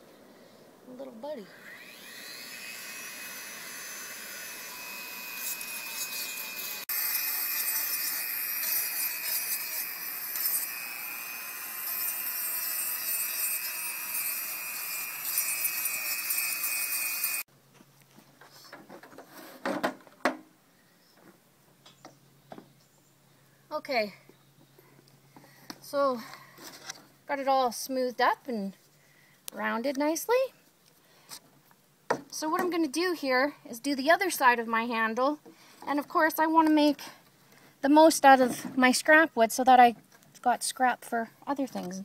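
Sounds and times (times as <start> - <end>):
rotary tool grinding wood: 1.5 - 17.5.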